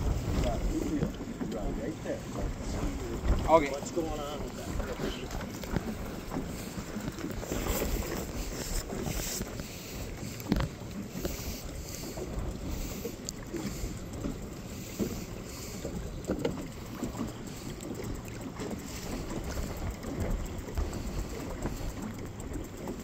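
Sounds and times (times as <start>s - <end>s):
wind buffeting microphone: 0.0s - 16.3s
water lapping at hull: 0.0s - 23.0s.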